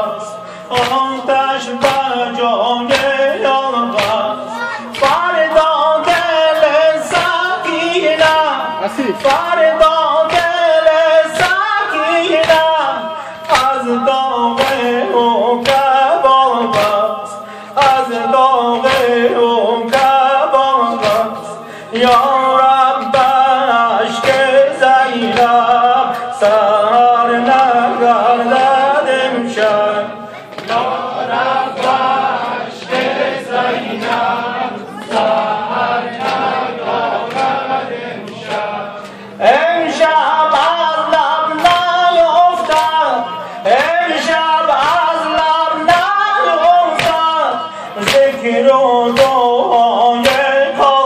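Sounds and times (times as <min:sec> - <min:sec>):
man chanting into a microphone: 0:00.0 - 0:30.4, 0:38.6 - 0:51.0
group of men chanting: 0:00.0 - 0:51.0
hand slaps on chest: 0:00.8 - 0:01.1, 0:04.0 - 0:04.2.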